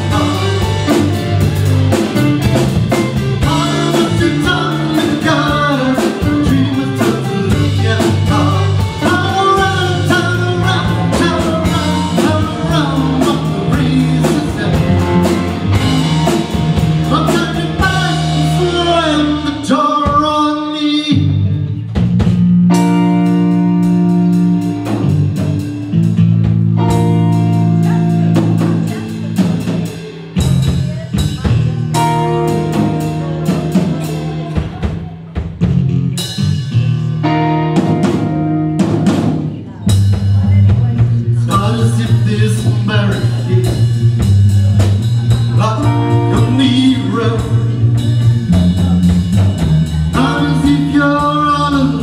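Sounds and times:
drum hits: 0.0s - 19.0s
person singing: 0.0s - 21.6s, 37.1s - 52.0s
live rock band playing: 0.0s - 52.0s.

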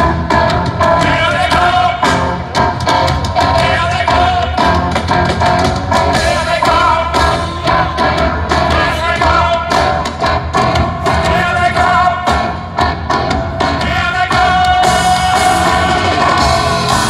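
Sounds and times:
drum kit beat: 0.0s - 17.0s
rock band playing live: 0.0s - 17.0s
man singing: 0.8s - 2.5s, 3.4s - 4.8s, 6.1s - 10.1s, 11.0s - 12.6s, 13.7s - 17.0s.

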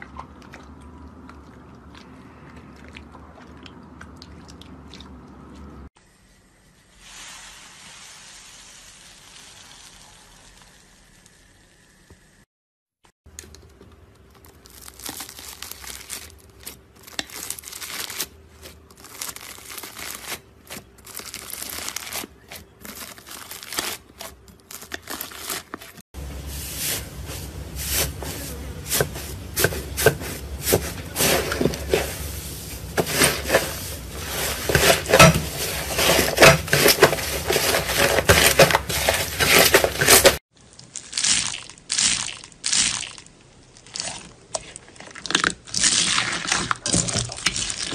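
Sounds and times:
slime crackling when kneaded: 14.2s - 25.7s.

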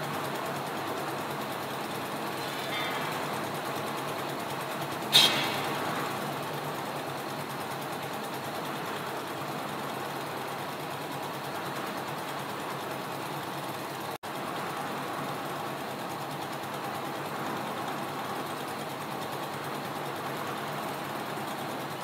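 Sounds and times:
diesel engine running: 0.0s - 22.0s
loud ringing clank: 2.4s - 3.3s, 5.1s - 5.8s.

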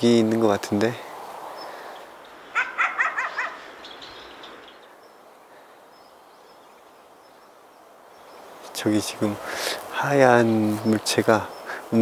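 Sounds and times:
dog barking: 2.6s - 3.6s.

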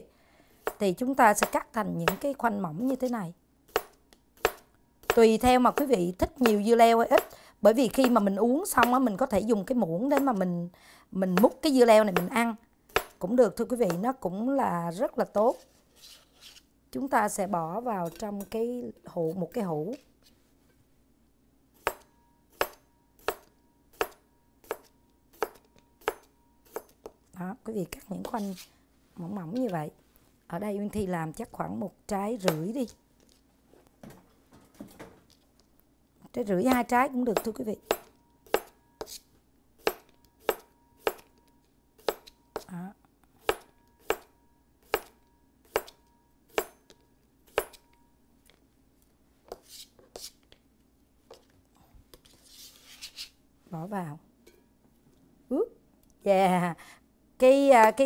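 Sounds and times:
knife chopping on plastic board: 3.7s - 6.6s, 11.4s - 13.2s, 21.8s - 27.2s, 39.8s - 41.3s, 42.0s - 42.7s.

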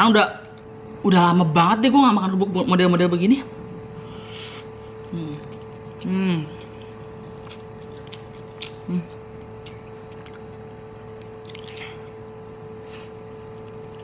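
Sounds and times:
steady electrical hum: 0.0s - 14.0s
person chewing and lip smacking: 4.9s - 14.0s.

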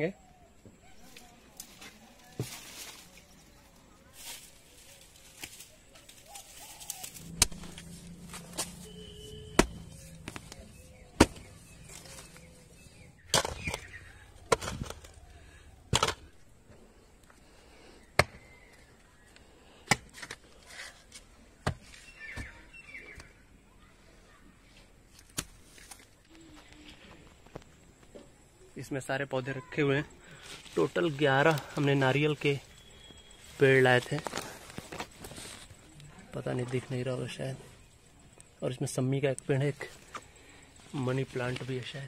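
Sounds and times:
digging blade chopping dry soil: 7.0s - 12.5s, 13.2s - 15.2s, 15.9s - 16.3s, 18.1s - 18.5s, 19.8s - 20.4s.

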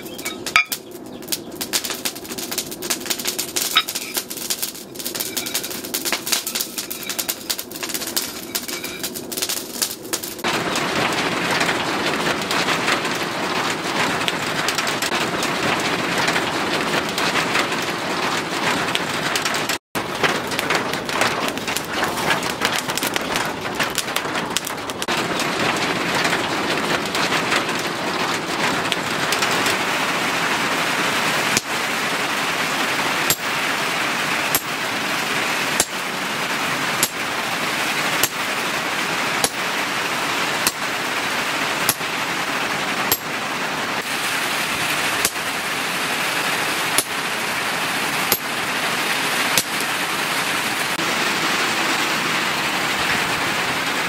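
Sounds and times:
hammer striking hot steel on anvil: 0.0s - 2.1s, 3.0s - 10.4s, 33.3s - 33.5s, 34.5s - 34.8s, 35.8s - 36.0s, 37.0s - 37.2s, 38.2s - 38.5s, 39.4s - 39.6s, 40.6s - 40.9s, 41.9s - 42.2s, 43.1s - 43.3s, 45.2s - 45.5s, 46.9s - 47.2s, 48.3s - 48.5s
steel crackling in forge: 0.0s - 54.0s.

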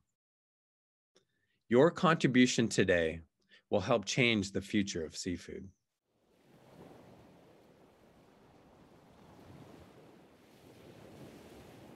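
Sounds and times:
ocean waves rushing: 6.2s - 11.9s.

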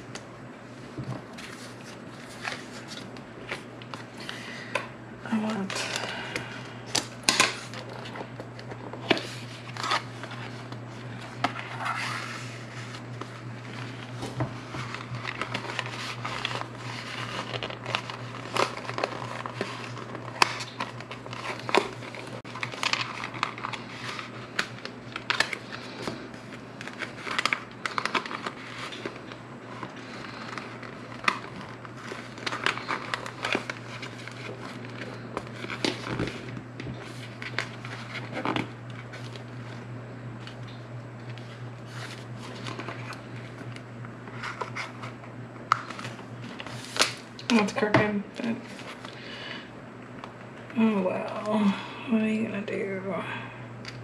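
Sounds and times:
plastic folder crinkling: 1.0s - 49.5s.

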